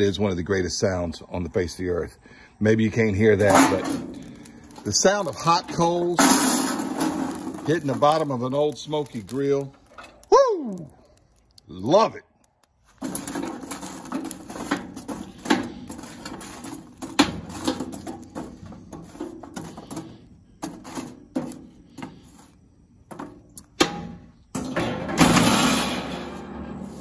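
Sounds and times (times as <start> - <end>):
tongs raking charcoal in grill: 3.2 - 22.8
metal grate clattering: 3.3 - 10.2, 13.0 - 22.1, 23.1 - 27.0.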